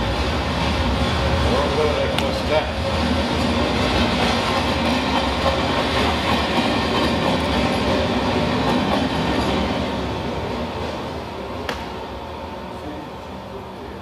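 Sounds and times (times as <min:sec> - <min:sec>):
train running on rails: 0:00.0 - 0:14.0.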